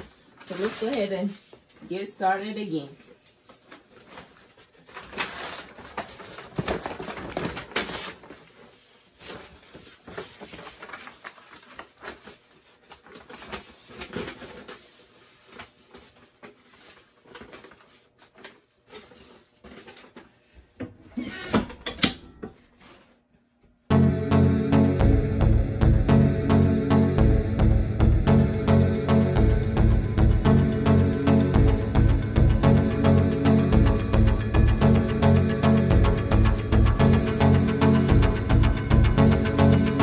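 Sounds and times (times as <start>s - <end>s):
rustling and handling noise: 0.0s - 20.8s, 22.4s - 23.5s.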